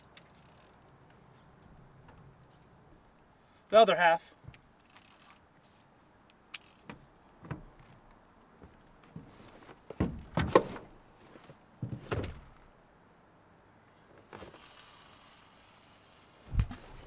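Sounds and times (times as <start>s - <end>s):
fishing line hissing off reel: 14.5s - 17.0s.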